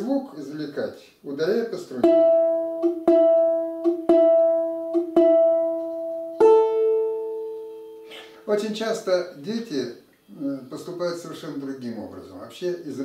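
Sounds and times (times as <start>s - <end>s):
balalaika strings plucked: 1.8s - 8.6s.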